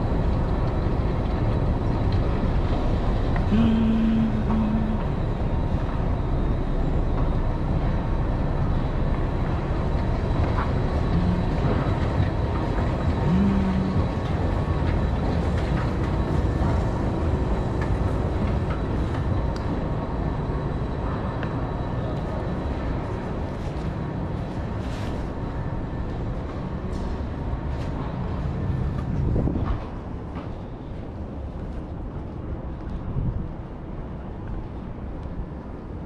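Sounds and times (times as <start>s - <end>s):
metro station rumble: 0.0s - 36.0s
brief low tones: 3.5s - 5.3s, 11.1s - 11.8s, 13.2s - 14.2s.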